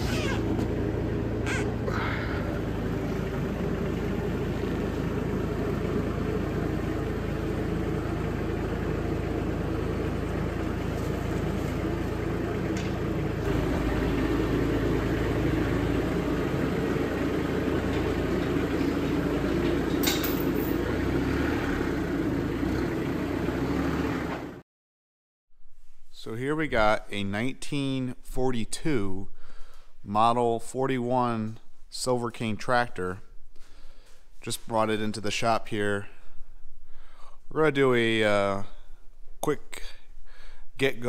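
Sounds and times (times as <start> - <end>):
engine running steadily: 0.0 - 24.6.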